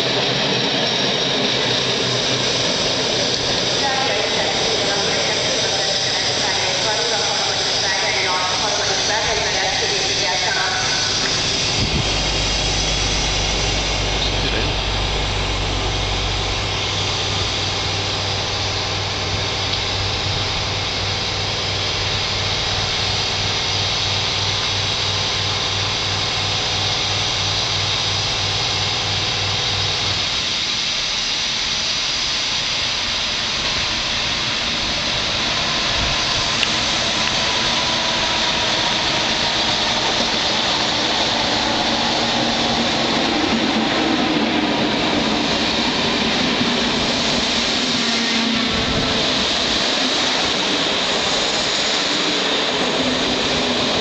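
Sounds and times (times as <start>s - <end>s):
electric locomotive whine: 0.0s - 54.0s
low hum: 11.0s - 30.0s.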